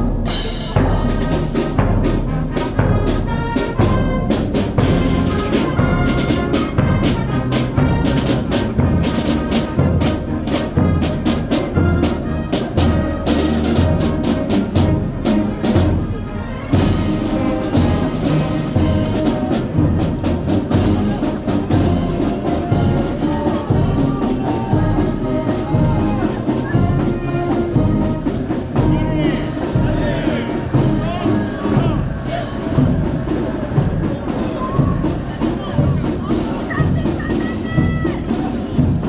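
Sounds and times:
bass drum beat: 0.0s - 16.1s
brass marching band: 0.0s - 39.0s.

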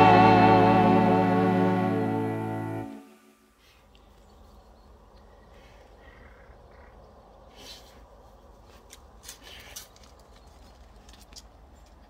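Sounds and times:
faint outdoor background: 0.0s - 12.0s
dog paws crunching on gravel: 8.6s - 12.0s.

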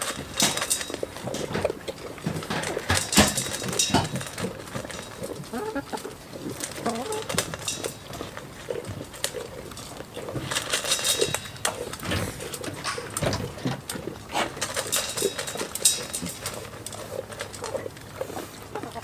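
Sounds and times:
animals feeding clicks and taps: 0.0s - 19.0s
soft chicken clucks: 17.6s - 19.0s.

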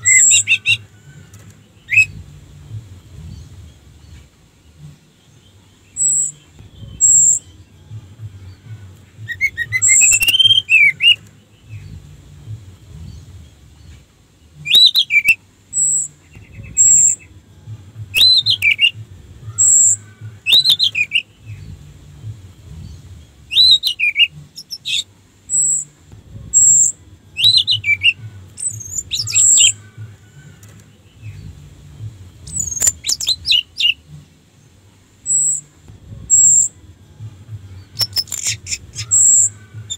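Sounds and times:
bird whistled phrases: 0.0s - 0.9s, 9.2s - 11.2s, 23.5s - 25.9s.

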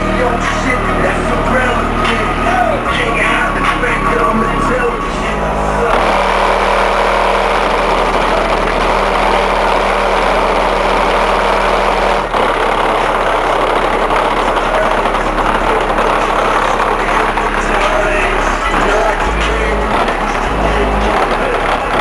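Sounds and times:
subwoofer playing heavy bass: 0.0s - 22.0s.

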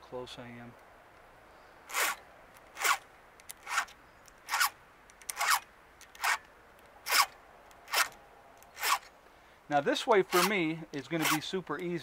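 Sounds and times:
file rasping on saw chain: 7.1s - 7.3s, 10.2s - 10.6s, 11.2s - 11.5s.

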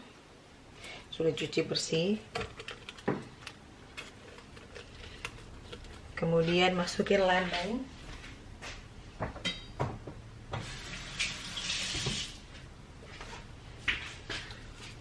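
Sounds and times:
kitchen knocks and clatters: 2.2s - 6.7s, 9.2s - 10.7s
kitchen tap running: 10.6s - 12.4s.

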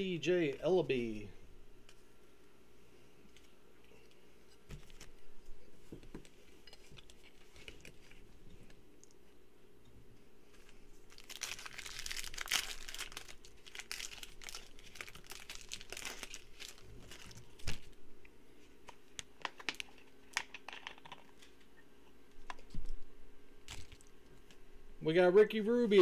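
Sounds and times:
foil wrapper crinkling and tearing: 11.1s - 18.0s, 23.7s - 24.1s.

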